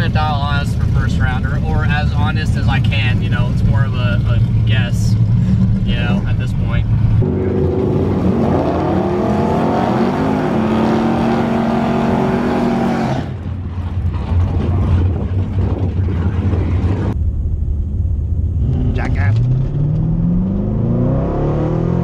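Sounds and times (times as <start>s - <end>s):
car engine revving: 0.0s - 22.0s.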